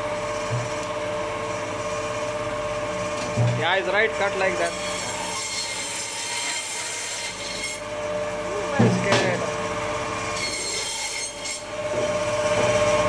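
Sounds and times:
band saw cutting meat and bone: 0:03.6 - 0:13.0.

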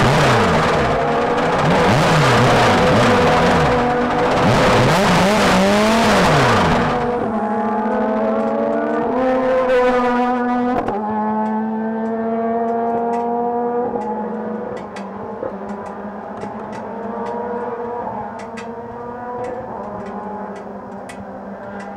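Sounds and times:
race car engine revving and idling: 0:00.0 - 0:21.9.

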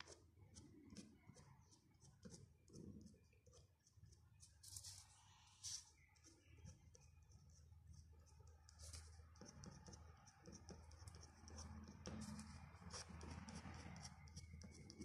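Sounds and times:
pen nib scratching paper: 0:06.6 - 0:15.0.

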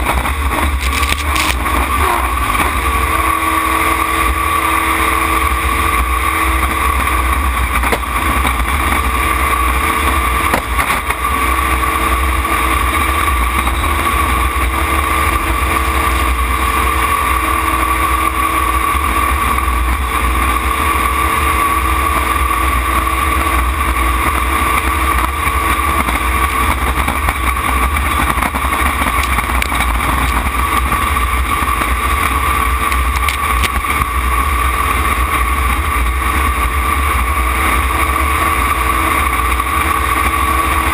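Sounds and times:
boat engine running: 0:00.0 - 0:40.9.

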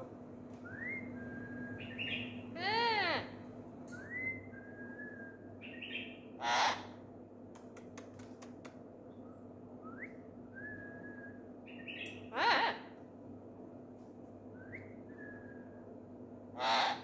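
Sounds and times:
parrot squawk: 0:06.4 - 0:07.0, 0:12.3 - 0:13.0, 0:16.6 - 0:17.0
sharp high clicks: 0:07.5 - 0:08.8.

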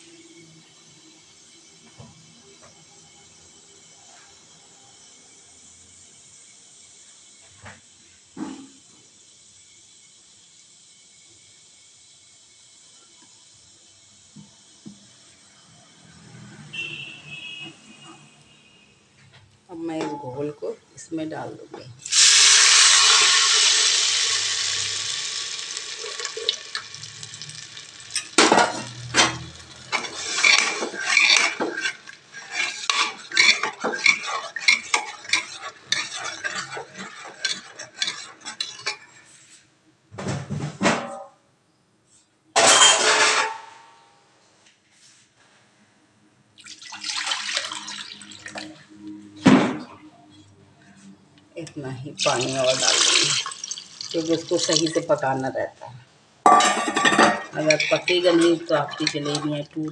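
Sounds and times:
batter sizzling in hot oil: 0:00.0 - 0:18.4, 0:22.0 - 0:39.4, 0:46.6 - 0:48.8, 0:52.2 - 0:55.6, 0:56.5 - 0:59.9
metal ladle scraping cooker: 0:22.1 - 0:39.4, 0:42.6 - 0:43.7, 0:56.5 - 0:59.9.

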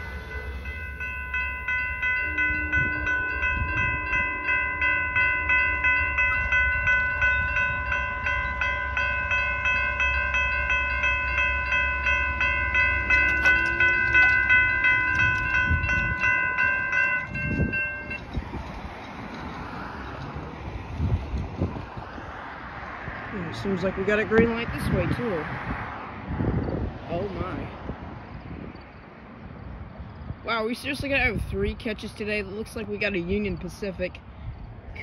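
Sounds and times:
low rumble: 0:00.0 - 0:19.0
railroad crossing bell ringing: 0:00.0 - 0:21.8.

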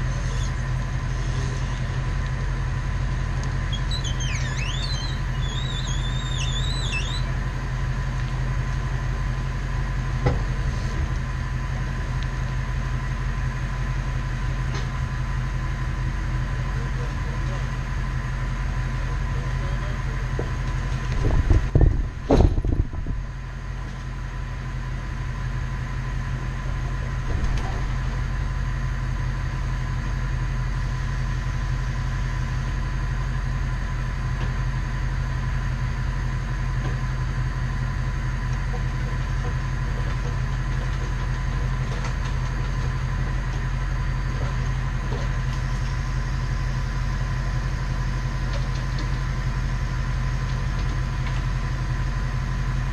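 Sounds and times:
thin steady whine: 0:00.0 - 0:39.8, 0:42.9 - 0:52.9
truck engine idling: 0:00.0 - 0:52.9
loud clunks: 0:21.2 - 0:23.0.

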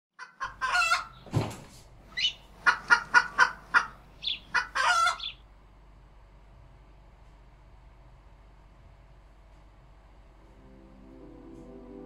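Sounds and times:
hen clucking and cackling: 0:00.2 - 0:01.2, 0:02.1 - 0:05.4.

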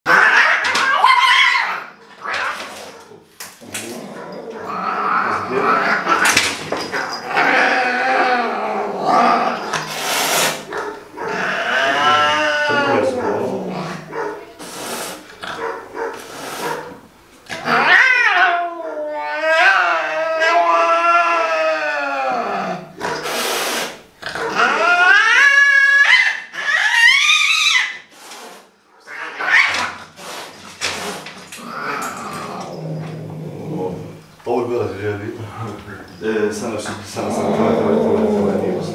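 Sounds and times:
cat yowling and growling: 0:00.1 - 0:02.9, 0:03.9 - 0:06.3, 0:07.0 - 0:09.8, 0:10.4 - 0:14.3, 0:17.5 - 0:28.1, 0:29.0 - 0:30.0, 0:31.6 - 0:34.2
cat hissing: 0:03.8 - 0:21.5, 0:22.4 - 0:33.3.

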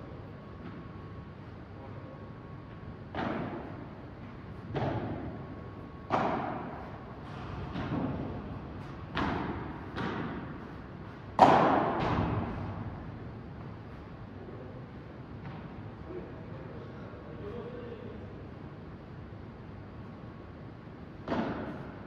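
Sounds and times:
padel ball hit with rackets: 0:09.1 - 0:10.6, 0:11.4 - 0:12.6, 0:21.2 - 0:21.8.

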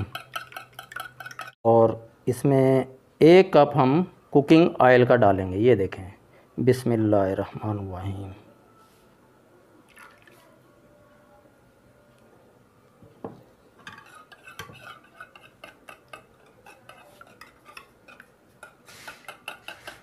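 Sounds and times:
whisk clicking against bowl: 0:00.0 - 0:01.6.

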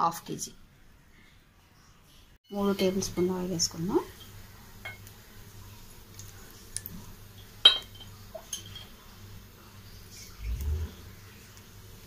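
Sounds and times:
faint low hum: 0:00.5 - 0:12.0
utensil clinking on pan: 0:04.1 - 0:05.1, 0:07.4 - 0:09.0.

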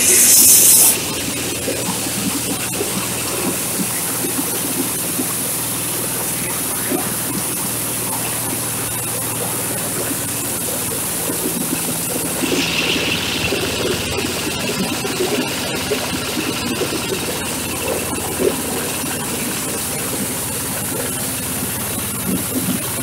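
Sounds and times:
husker machine rushing noise: 0:00.0 - 0:03.6, 0:06.1 - 0:23.0
diesel engine running: 0:00.0 - 0:23.0.

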